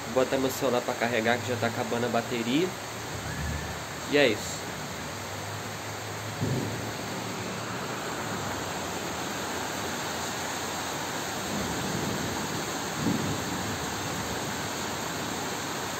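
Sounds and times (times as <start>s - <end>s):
heavy rain falling: 0.0s - 15.9s
low thumps: 6.3s - 7.4s.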